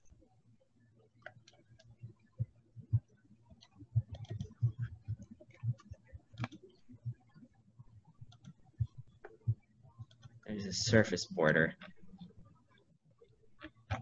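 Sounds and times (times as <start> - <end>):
mouse and keyboard clicking: 3.6 - 6.6, 13.6 - 14.0.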